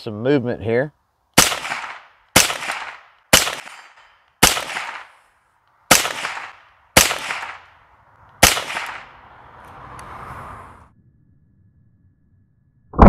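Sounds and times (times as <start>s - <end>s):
rifle shots ringing: 1.4s - 5.2s, 5.9s - 7.7s, 8.4s - 9.1s.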